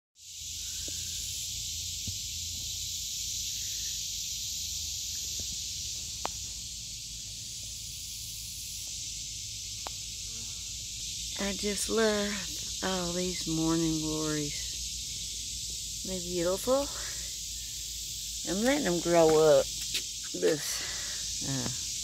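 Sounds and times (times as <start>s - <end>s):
cicadas droning: 0.2s - 22.0s
faint ticks: 6.2s - 6.4s, 9.8s - 10.0s.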